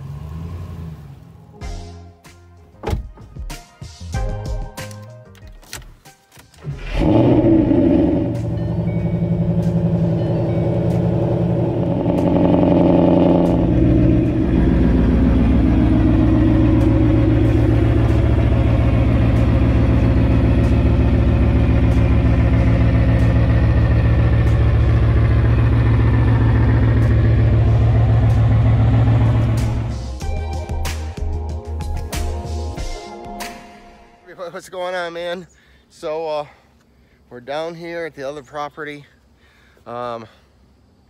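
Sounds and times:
car engine and exhaust running: 0.0s - 1.5s, 6.6s - 30.5s.

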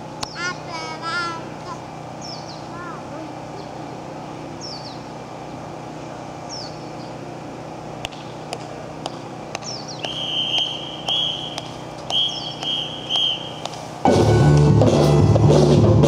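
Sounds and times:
high falling chirp: 9.6s - 13.7s
whistle blasts: 10.0s - 13.7s.

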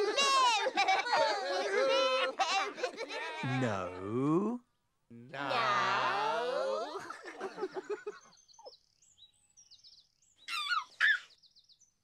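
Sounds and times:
baby giggling: 0.0s - 4.3s
voice trailing off in pulses: 3.4s - 6.2s
birds chirping: 7.2s - 12.0s.

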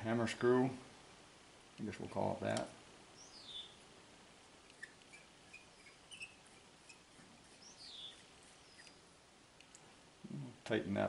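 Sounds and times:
bird chirps: 3.1s - 3.8s, 4.7s - 9.1s.

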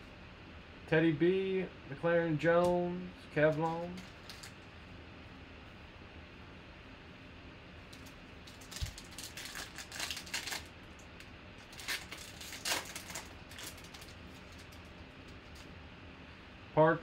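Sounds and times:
foil wrapper tearing and crinkling: 4.0s - 4.6s, 8.0s - 10.8s, 11.6s - 15.6s.

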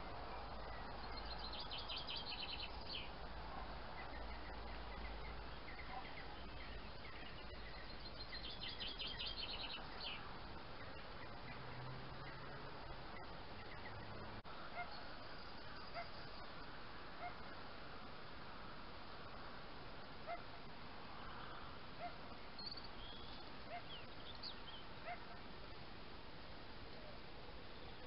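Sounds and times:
steady hiss: 14.4s - 28.0s
distant fox barking: 14.6s - 15.1s, 15.7s - 16.2s, 17.2s - 17.5s, 20.2s - 20.5s, 22.0s - 22.4s, 23.6s - 24.1s, 25.0s - 25.5s.

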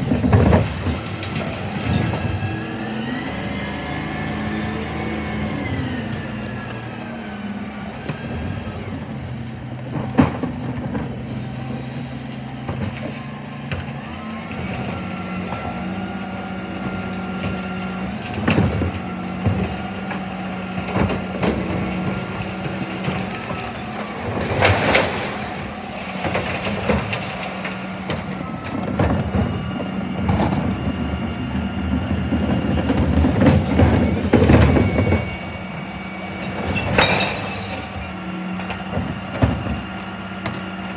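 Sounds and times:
plastic bins knocking and clattering: 0.0s - 2.2s.

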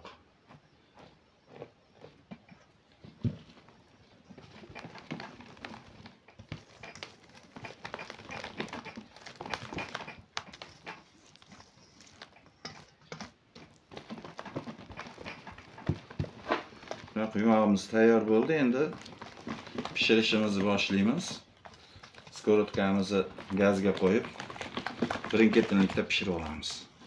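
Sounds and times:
whisk tapping and scraping bowl: 9.2s - 13.7s.

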